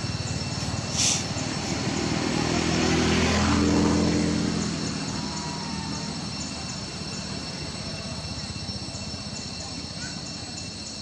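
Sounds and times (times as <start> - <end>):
engine noise: 0.0 - 11.0.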